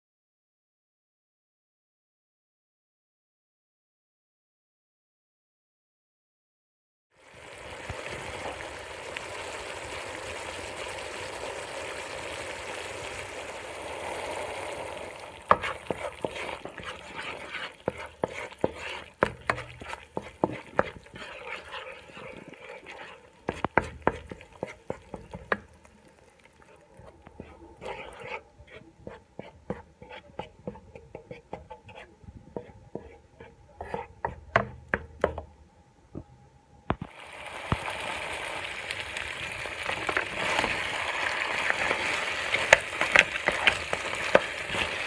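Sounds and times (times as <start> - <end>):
sauce sizzling and bubbling: 7.1 - 32.0, 37.0 - 45.0.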